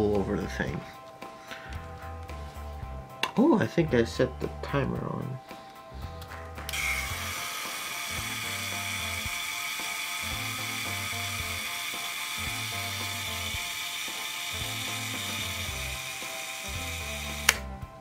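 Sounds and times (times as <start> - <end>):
background music with bass line: 0.0 - 13.8, 14.5 - 18.0
camera self-timer whirring: 6.7 - 17.7
camera shutter release: 6.7 - 17.7.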